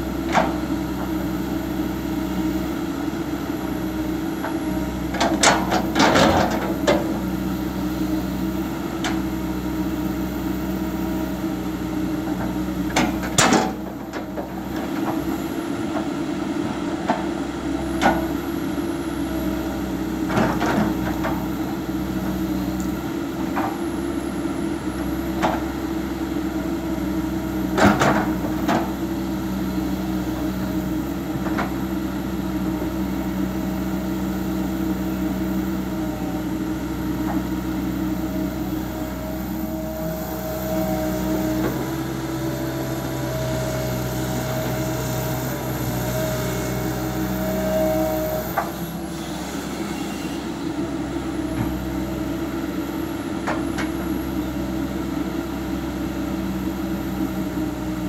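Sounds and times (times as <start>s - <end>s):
excavator diesel engine: 0.0s - 58.0s
hydraulic whine: 17.7s - 55.1s.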